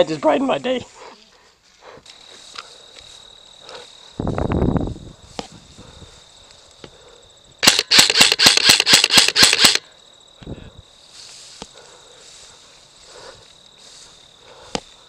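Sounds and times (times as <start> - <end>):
airsoft gun rapid firing: 7.6 - 9.8.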